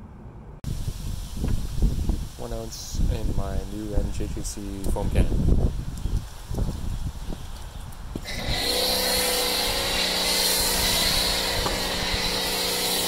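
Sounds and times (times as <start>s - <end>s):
foam spray hissing: 0.7s - 4.2s, 8.2s - 13.0s
pressure washer motor and pump: 8.2s - 13.0s.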